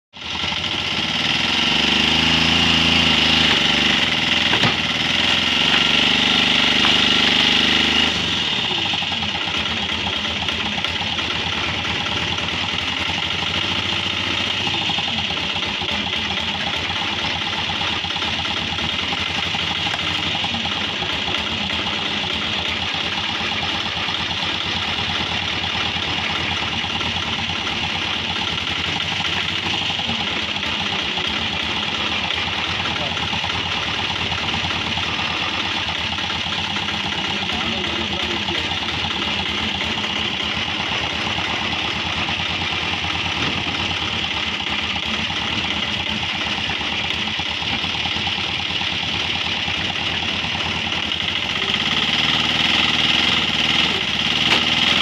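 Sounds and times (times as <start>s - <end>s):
log splitter engine running: 0.2s - 55.0s.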